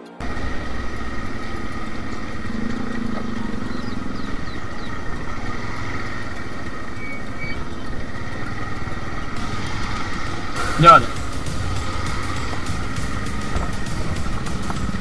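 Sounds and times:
motorcycle engines rumbling: 0.2 - 15.0.

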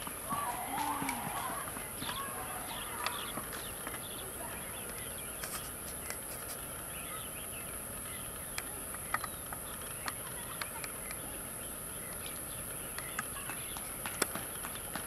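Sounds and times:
short bird chirps: 5.3 - 7.2.

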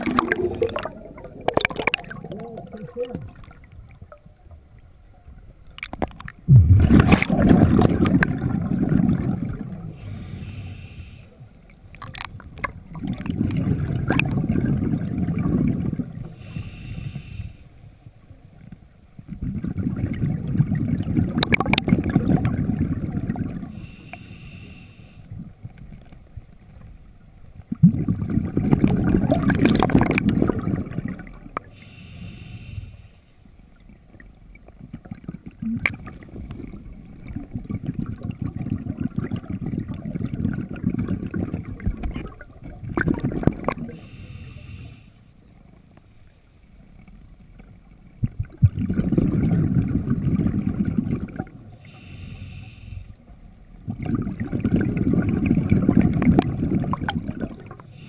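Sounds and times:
exhaled bubbles rumbling underwater: 0.0 - 33.0, 33.6 - 44.8, 46.6 - 58.0
hiss of diver inhaling: 9.9 - 11.5, 16.3 - 17.9, 23.7 - 25.3, 31.7 - 33.4, 43.9 - 45.4, 51.8 - 53.3.

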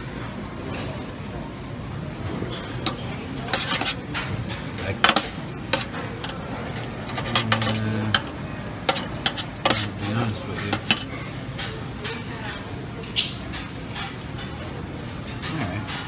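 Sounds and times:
restaurant background noise: 0.0 - 16.0
metal tongs clinking on pan: 2.5 - 12.3.

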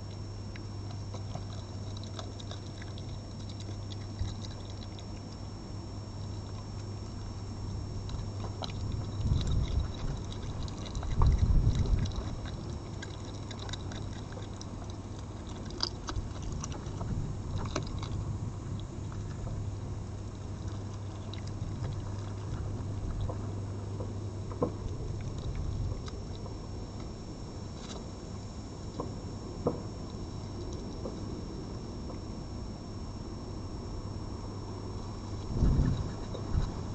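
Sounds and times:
steady low hum: 0.0 - 36.9
fox eating clicks and crunches: 0.1 - 32.2, 34.9 - 36.9
low rumble: 34.2 - 36.9.

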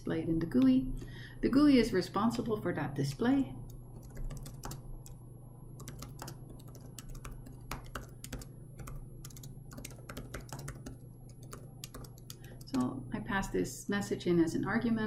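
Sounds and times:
typing on computer keyboard: 3.7 - 5.2, 5.8 - 12.9.

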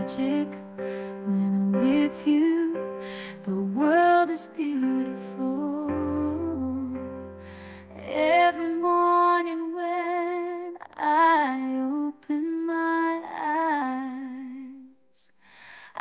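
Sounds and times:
woman singing ballad: 0.0 - 15.2.

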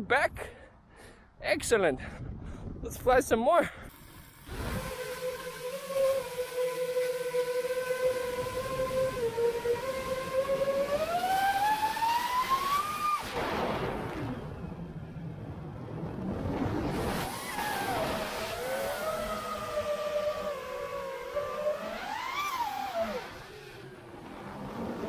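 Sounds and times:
wind noise: 1.6 - 5.0
quadcopter motors whining: 3.8 - 15.3, 16.2 - 25.0.

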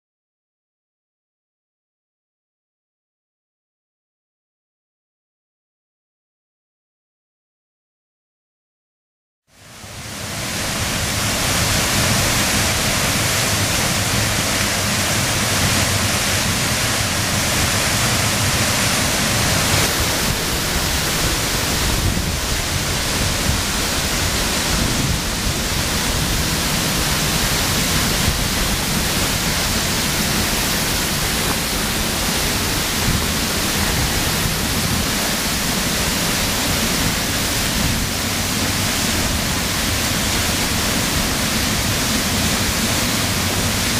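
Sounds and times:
waterfall rushing onto rocks: 9.6 - 43.9.

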